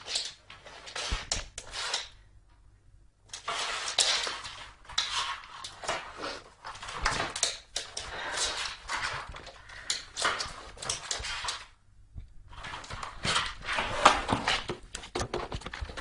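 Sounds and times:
box scraping on wooden floor: 3.4s - 7.0s, 12.5s - 14.8s.

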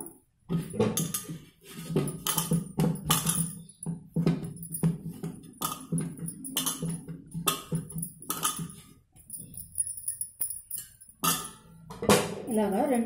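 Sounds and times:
bangles jingling: 2.1s - 11.8s
metal plate knocking on table: 11.2s - 12.5s.

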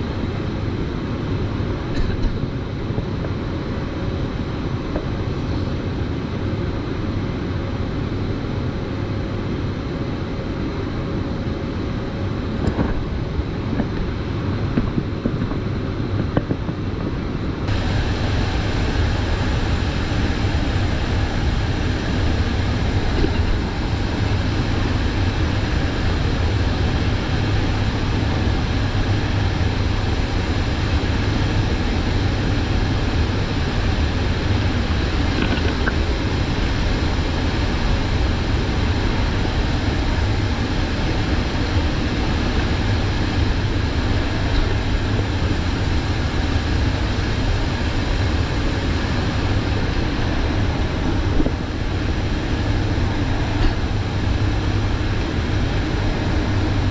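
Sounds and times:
turboprop engines droning: 0.0s - 56.9s.

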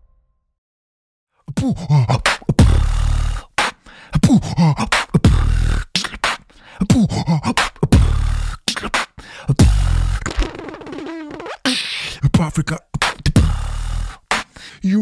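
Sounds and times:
beatboxing vocal beat: 1.5s - 15.0s
deep buzzing vocal bass: 1.6s - 3.5s, 4.2s - 5.9s, 6.8s - 8.7s, 9.5s - 10.3s, 12.2s - 14.2s.

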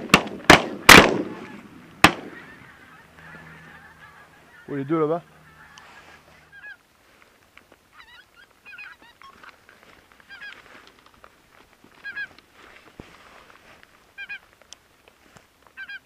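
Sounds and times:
geese honking: 0.8s - 6.9s, 7.9s - 10.7s, 12.0s - 12.4s, 14.1s - 14.5s, 15.7s - 16.0s.

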